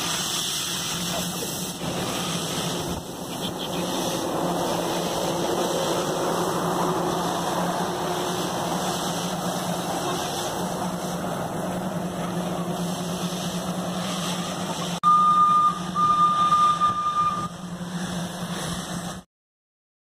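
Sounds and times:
low engine hum: 0:00.0 - 0:19.2
train whistle blasts: 0:15.0 - 0:17.6.

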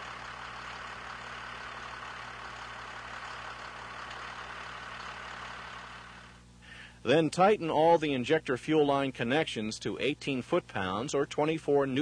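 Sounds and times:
diesel engine idling: 0:00.0 - 0:06.4.

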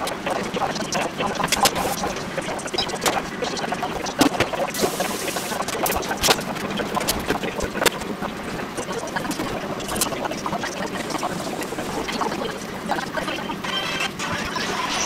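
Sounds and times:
food sizzling in frying pans: 0:04.2 - 0:06.3.

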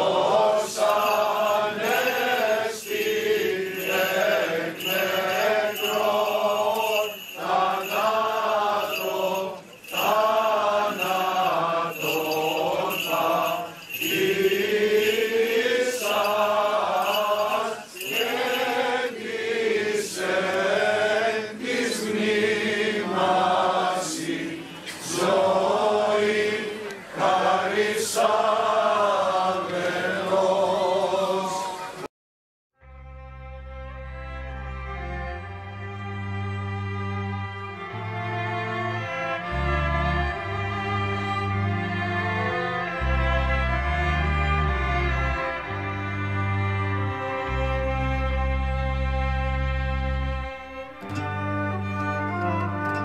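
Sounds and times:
voices chanting a hymn: 0:00.0 - 0:32.1.

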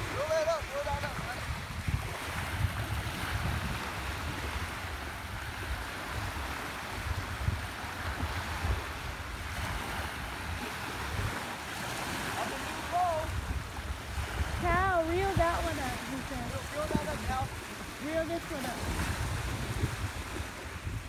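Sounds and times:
wind rumbling on microphone: 0:00.0 - 0:21.0
waves breaking on gravel: 0:05.7 - 0:21.0.

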